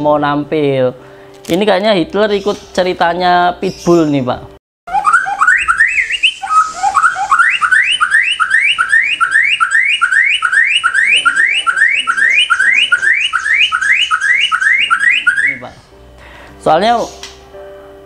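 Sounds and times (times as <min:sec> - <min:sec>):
songbird singing whistled notes: 0:04.9 - 0:15.7.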